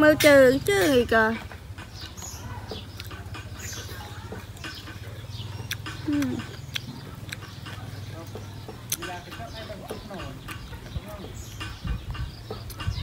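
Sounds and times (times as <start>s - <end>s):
chewing: 2.0s - 9.4s
person humming: 6.1s - 6.5s.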